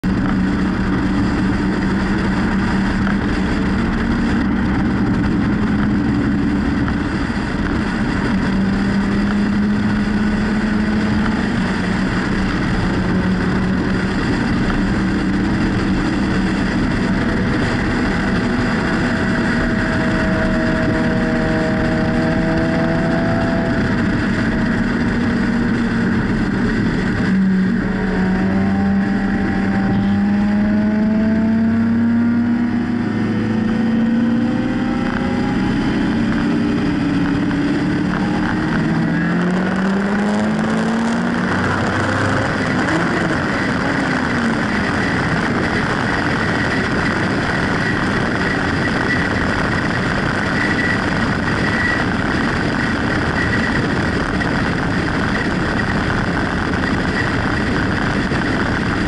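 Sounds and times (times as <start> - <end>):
car and motorcycle engines idling: 0.0 - 22.8.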